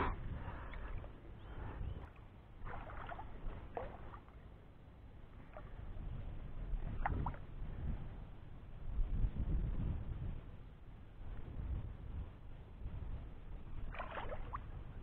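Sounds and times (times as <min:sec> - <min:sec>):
shallow water lapping: 0:00.0 - 0:07.9, 0:13.6 - 0:15.0.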